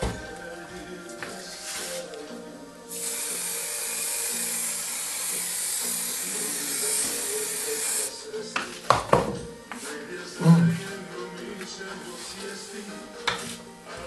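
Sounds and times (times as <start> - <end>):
background music: 0.0 - 14.0
aerosol can spraying hiss: 2.9 - 8.1.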